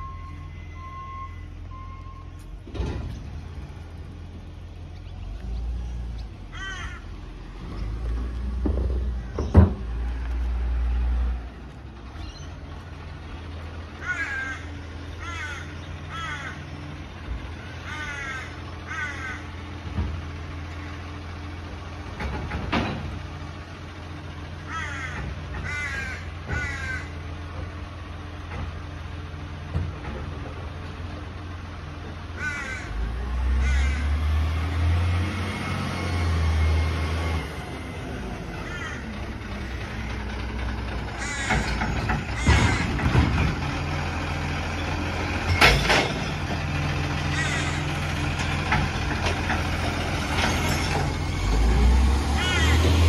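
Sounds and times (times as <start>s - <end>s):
crows cawing: 6.5s - 7.2s, 14.0s - 16.8s, 17.8s - 19.6s, 24.6s - 27.2s, 32.3s - 33.0s, 33.6s - 34.1s, 38.6s - 40.3s, 41.1s - 43.0s, 47.2s - 48.1s, 52.3s - 53.0s.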